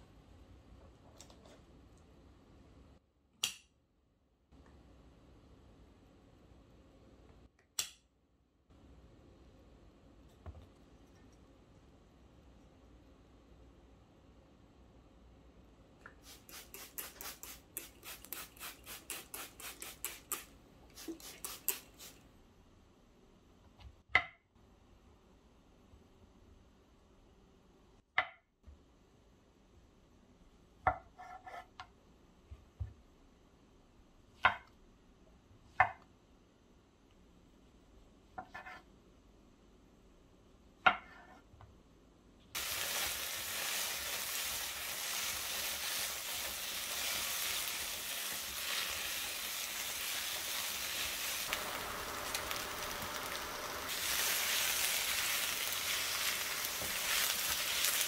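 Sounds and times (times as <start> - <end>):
food sizzling in hot pan: 16.2 - 22.2, 42.6 - 58.0.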